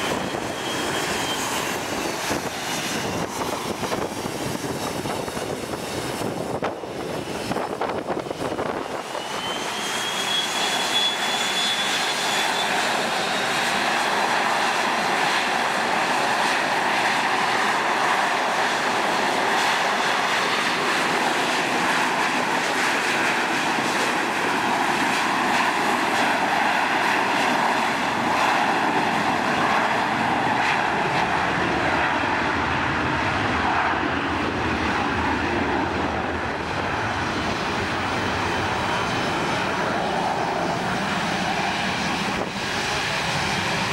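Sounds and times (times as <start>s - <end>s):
rising engine whine: 0.0s - 15.4s
jet engines roaring: 0.0s - 43.9s.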